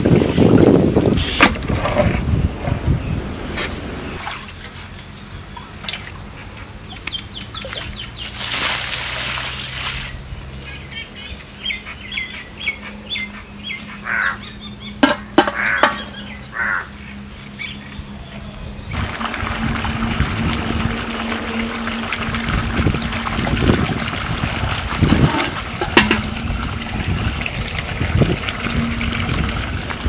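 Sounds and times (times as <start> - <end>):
fowl calling: 12.8 - 17.2.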